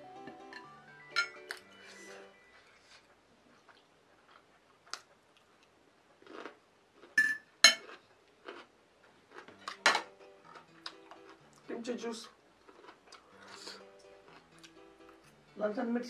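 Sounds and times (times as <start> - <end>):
utensils clinking on ceramic plate: 0.5 - 1.5
soft eating sounds: 1.4 - 15.4.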